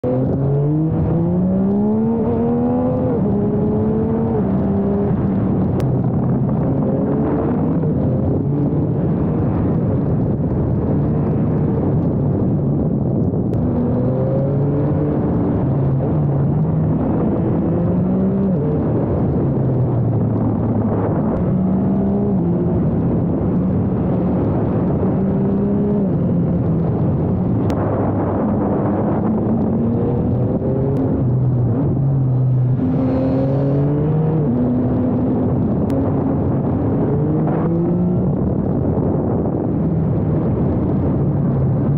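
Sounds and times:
motorcycle engine accelerating: 0:00.0 - 0:41.9.

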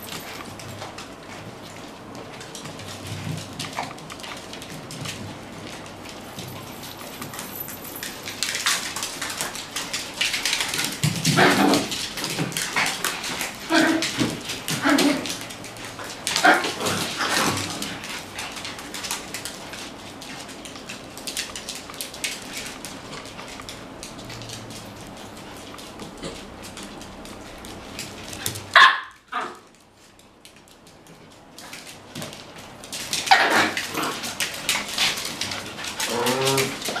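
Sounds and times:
dog paws clicking on hard floor: 0:00.0 - 0:37.0
dogs barking: 0:28.7 - 0:29.6, 0:33.3 - 0:34.2
dog barking: 0:28.8 - 0:29.6.

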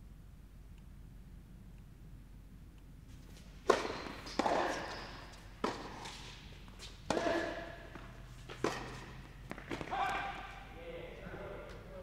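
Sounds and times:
tennis ball hit by racket: 0:03.6 - 0:06.4, 0:07.1 - 0:10.4.

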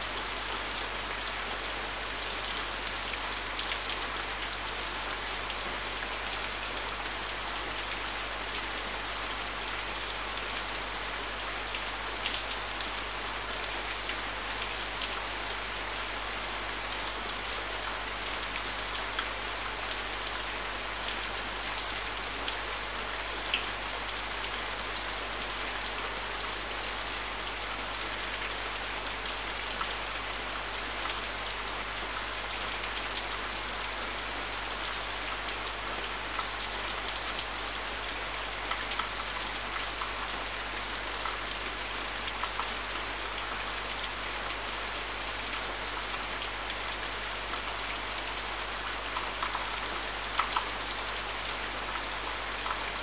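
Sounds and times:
rain pattering: 0:34.9 - 0:53.0.

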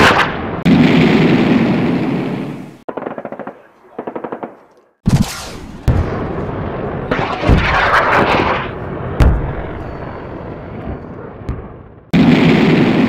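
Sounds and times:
explosions: 0:00.0 - 0:02.6, 0:05.0 - 0:13.0
gunshot: 0:05.0 - 0:06.4, 0:07.1 - 0:09.8
explosion rumble: 0:05.2 - 0:13.0.

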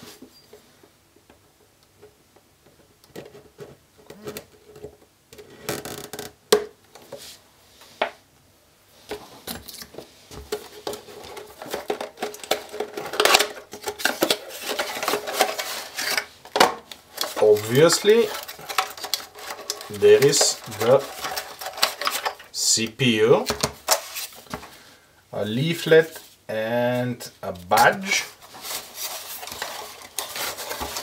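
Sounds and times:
cardboard flaps rustling and scraping: 0:09.2 - 0:22.5, 0:23.4 - 0:24.8, 0:27.8 - 0:31.0.

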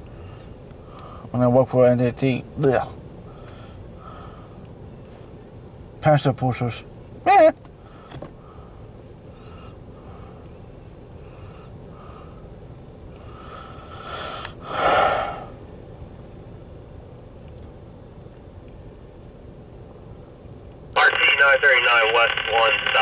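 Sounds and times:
person breathing: 0:00.1 - 0:01.3, 0:03.3 - 0:04.6, 0:07.8 - 0:10.5, 0:11.2 - 0:12.5, 0:13.1 - 0:15.6.

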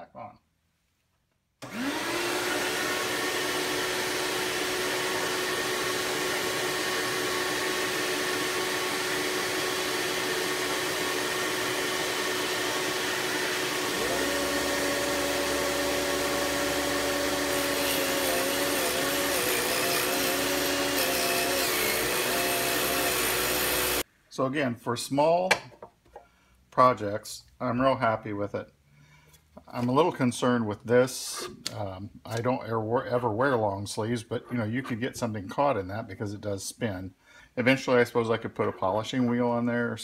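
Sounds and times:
saw cutting wooden board: 0:01.6 - 0:24.0
shop vac motor whining: 0:01.6 - 0:24.0
table saw motor whine: 0:01.6 - 0:24.0.

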